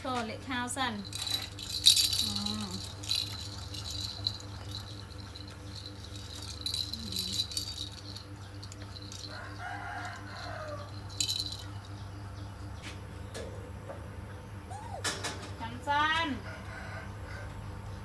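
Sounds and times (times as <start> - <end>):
low steady hum: 0.0 - 18.0
baby rattle bells jingling: 1.0 - 12.0.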